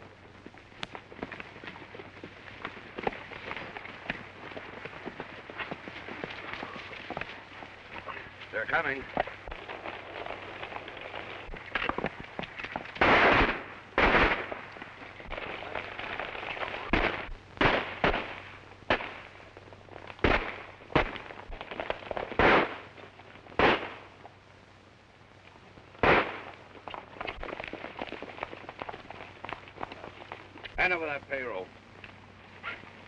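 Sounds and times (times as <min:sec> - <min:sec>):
galloping horses: 0:00.0 - 0:24.4, 0:25.4 - 0:33.0
gunshots: 0:13.0 - 0:14.7, 0:15.3 - 0:19.4, 0:20.2 - 0:22.9, 0:23.6 - 0:24.1, 0:26.0 - 0:26.5.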